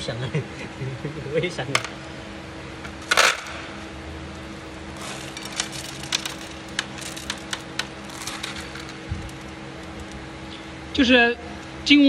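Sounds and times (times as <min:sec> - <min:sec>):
steady low hum: 0:00.0 - 0:12.0
stone beads rattling in metal sieve: 0:05.0 - 0:09.5.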